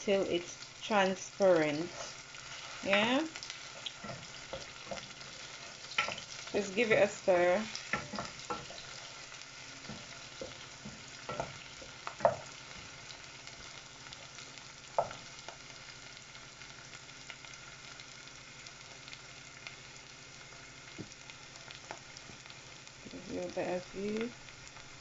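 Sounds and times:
onions sizzling in oil: 0.0 - 25.0.

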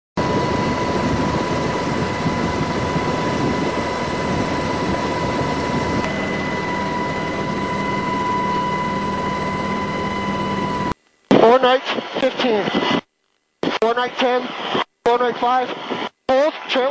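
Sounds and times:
steady high tone: 0.2 - 11.6
helicopter rotor and engine rush: 0.2 - 12.8
low hum: 0.2 - 14.8.

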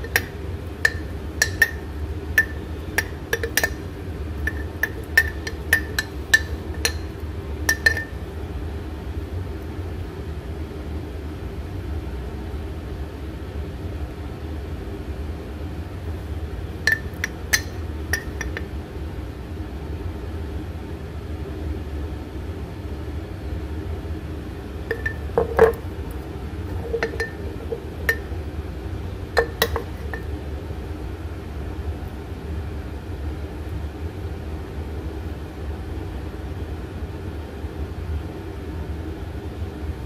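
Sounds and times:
steady low hum: 0.0 - 40.0
glass jar clinking: 0.9 - 3.8, 4.5 - 8.2, 16.9 - 18.6, 24.9 - 25.9, 26.7 - 28.3, 29.4 - 30.3.

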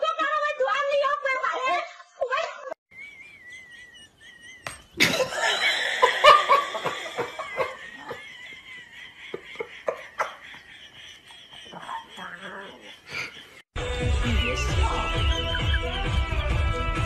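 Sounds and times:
person laughing hard: 3.3 - 13.6.

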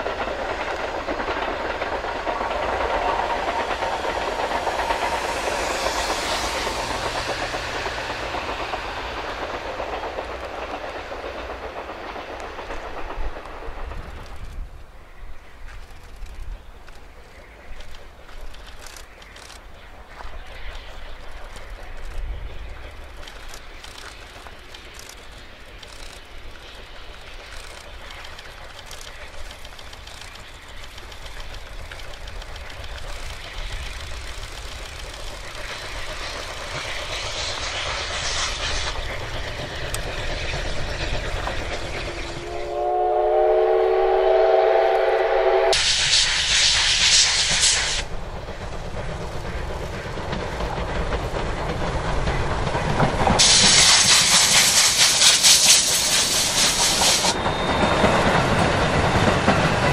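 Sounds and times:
fast-pulsing steam hiss: 0.0 - 59.9
steam locomotive exhaust beats: 0.0 - 59.9
steam whistle: 42.4 - 48.0.

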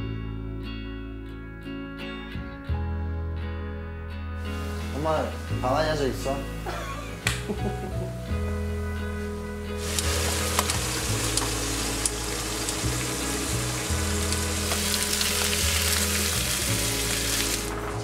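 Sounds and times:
fish sizzling in a pan: 4.5 - 5.7, 9.8 - 18.0.

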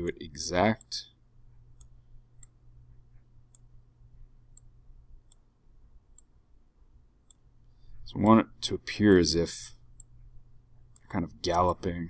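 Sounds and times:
low steady hum: 0.0 - 12.0
computer mouse clicks: 1.8 - 3.7, 4.5 - 5.5, 6.1 - 6.3, 10.9 - 11.1.

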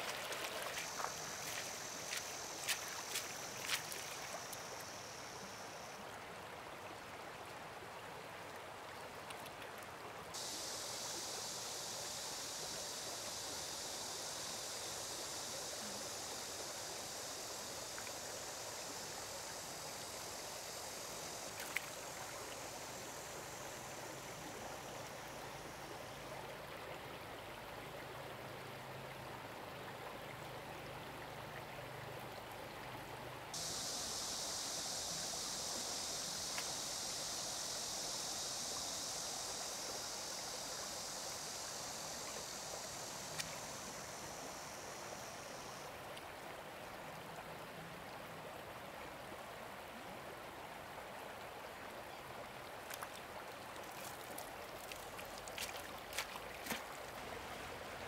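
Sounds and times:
high steady hiss: 0.0 - 58.0
stream water running: 0.0 - 58.0.

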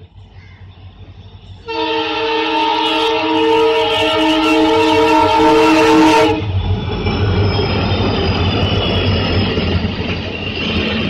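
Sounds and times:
diesel locomotive engine rumble: 0.0 - 11.0
train wheel noise: 0.0 - 11.0
locomotive horn: 1.6 - 6.5.

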